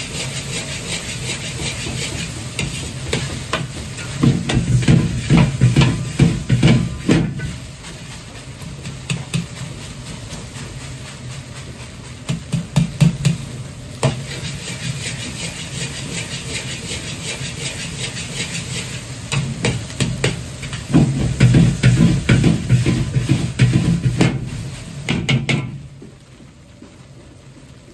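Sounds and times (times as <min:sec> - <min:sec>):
metal ladle scraping a wok: 0:00.0 - 0:09.8, 0:14.0 - 0:24.7
gas burner rushing hiss: 0:00.0 - 0:26.0.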